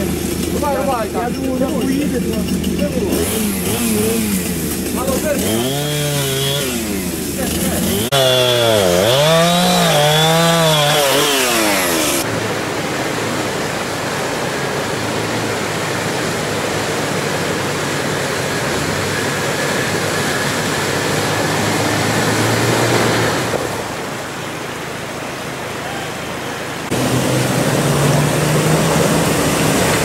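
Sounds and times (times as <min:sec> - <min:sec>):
car engine running low: 0:00.0 - 0:09.4, 0:10.1 - 0:30.0
rushing river water: 0:00.0 - 0:30.0
chainsaw cutting wood: 0:01.4 - 0:12.3, 0:17.4 - 0:23.8, 0:26.9 - 0:30.0.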